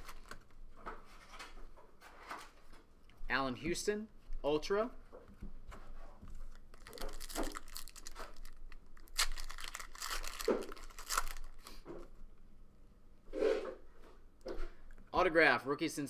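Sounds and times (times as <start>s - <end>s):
foil wrapper tearing and crinkling: 0.0s - 0.4s, 6.5s - 11.8s.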